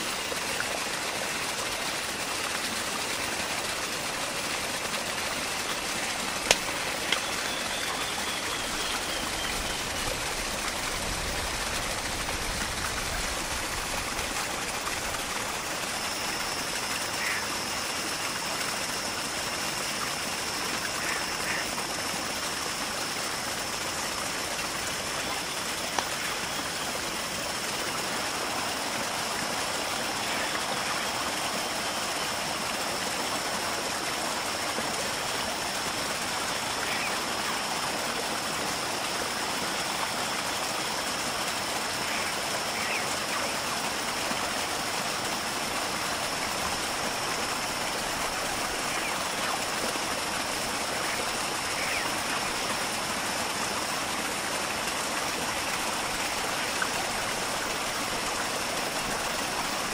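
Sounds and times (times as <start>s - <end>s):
running water: 0.0s - 59.9s
thin high tone: 6.8s - 10.2s.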